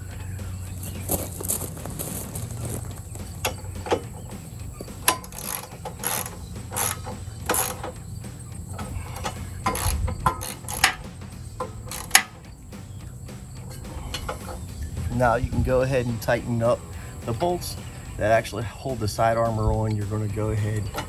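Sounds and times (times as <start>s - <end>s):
socket ratchet clicking: 5.0s - 8.0s, 8.7s - 12.4s.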